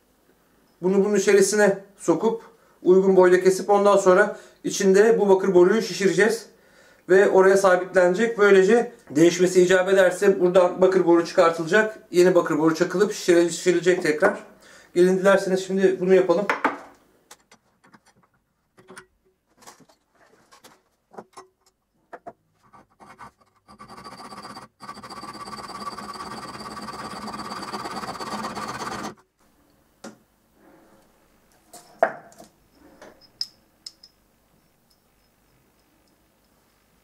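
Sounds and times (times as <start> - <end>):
saw cutting copper tube: 22.6 - 29.2.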